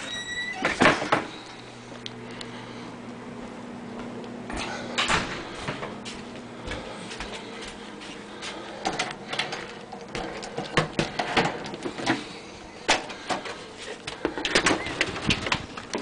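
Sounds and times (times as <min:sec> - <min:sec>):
door opening: 0:00.0 - 0:01.3.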